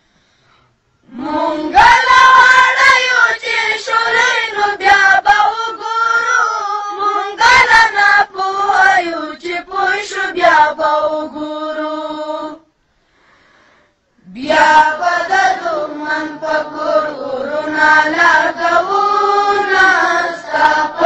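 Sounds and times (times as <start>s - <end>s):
high voice singing: 1.1s - 12.7s.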